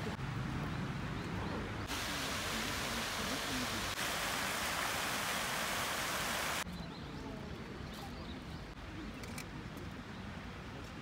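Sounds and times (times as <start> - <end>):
faint outdoor murmur: 0.0 - 11.0
fountain water splashing: 1.8 - 6.6.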